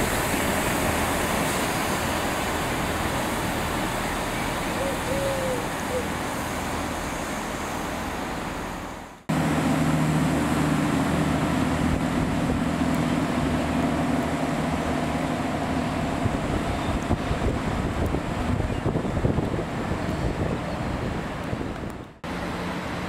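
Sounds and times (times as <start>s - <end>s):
train diesel engines humming: 0.0s - 23.0s.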